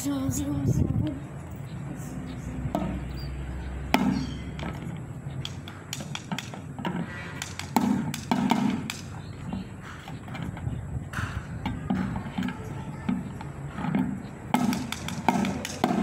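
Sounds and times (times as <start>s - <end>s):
drumsticks hitting metal cans: 5.4s - 10.5s, 11.2s - 16.0s.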